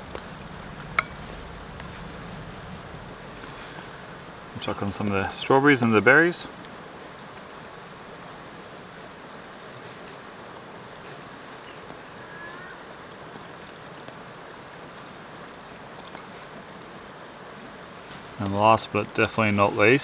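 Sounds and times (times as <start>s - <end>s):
even rushing hiss: 0.0s - 9.0s
faint high chirps and ticks: 6.6s - 9.9s, 10.7s - 18.6s.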